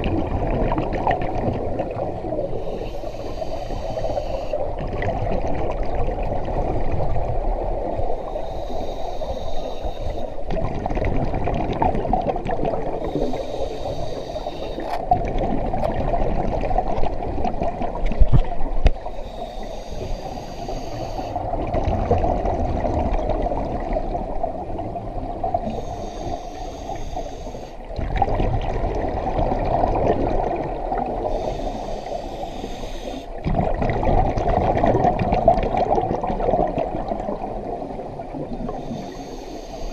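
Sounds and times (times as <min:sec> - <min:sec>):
water bubbling and gurgling: 0:00.0 - 0:39.9
diver breathing through regulator: 0:02.6 - 0:04.7, 0:08.1 - 0:10.5, 0:13.0 - 0:15.0, 0:19.0 - 0:21.5, 0:25.6 - 0:27.9, 0:31.2 - 0:33.4, 0:38.7 - 0:39.9.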